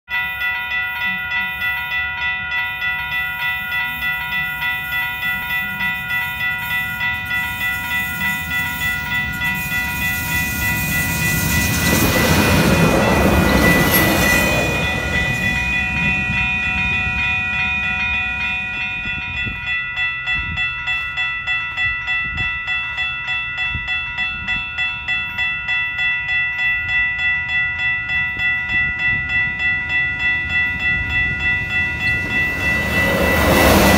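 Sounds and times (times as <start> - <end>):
railroad crossing bells ringing: 0.0 - 33.9
train rushing past: 5.9 - 19.7, 28.7 - 33.9.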